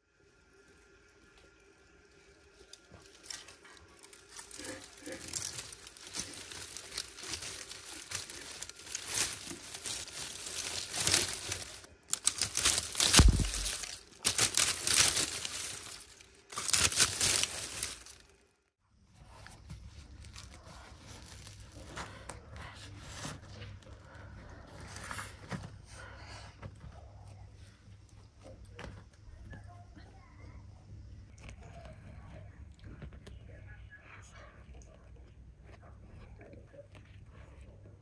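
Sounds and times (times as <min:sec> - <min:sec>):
fire crackling: 0:01.6 - 0:18.5
dry stalks rustling: 0:02.4 - 0:18.4, 0:19.4 - 0:22.4.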